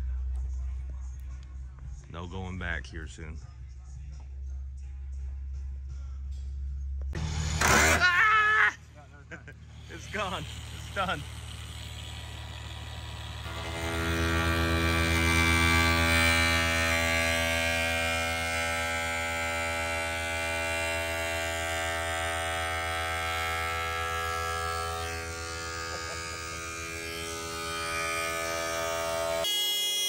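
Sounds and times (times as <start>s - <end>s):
angle grinder cutting metal: 7.2s - 8.1s, 9.7s - 30.0s.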